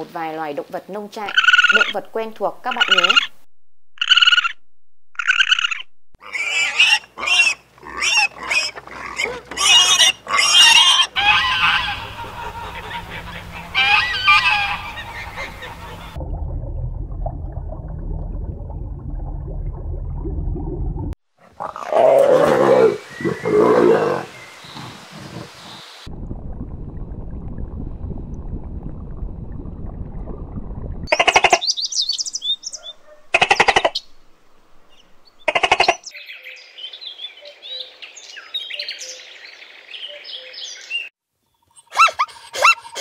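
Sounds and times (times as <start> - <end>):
sharp animal cries: 1.3 - 2.0, 5.2 - 12.2
geese honking: 6.6 - 16.2
deep growling call: 21.6 - 25.6.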